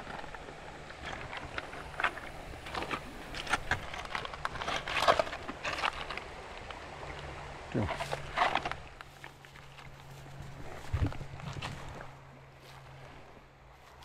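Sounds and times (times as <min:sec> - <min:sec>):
footsteps crunching on stones: 0:07.8 - 0:14.0
footsteps rustling through grass: 0:09.1 - 0:14.0.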